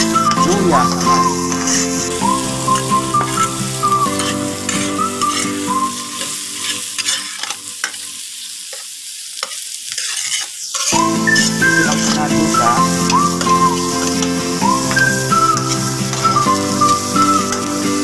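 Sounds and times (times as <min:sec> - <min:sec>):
background music: 0:00.0 - 0:07.0, 0:11.0 - 0:18.0
food sizzling in hot oil: 0:00.0 - 0:18.0.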